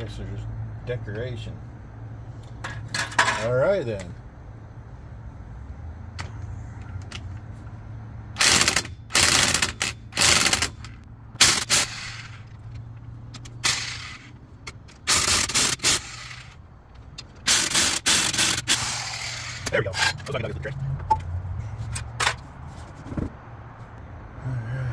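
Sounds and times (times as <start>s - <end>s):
impact wrench hammering: 8.4s - 12.4s, 17.2s - 20.2s.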